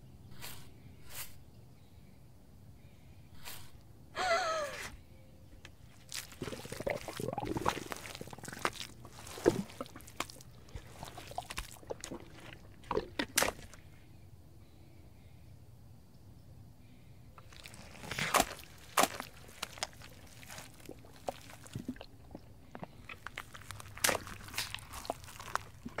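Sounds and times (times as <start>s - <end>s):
wet splats: 5.8s - 13.8s, 17.4s - 26.0s
mud squelching and sloshing: 5.8s - 14.0s, 17.4s - 26.0s.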